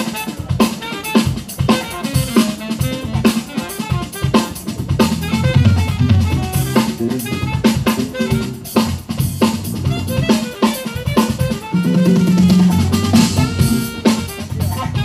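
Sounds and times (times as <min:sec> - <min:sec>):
drum kit beat: 0:00.0 - 0:15.0
jazz melody line: 0:00.0 - 0:15.0
electric bass line: 0:04.7 - 0:15.0.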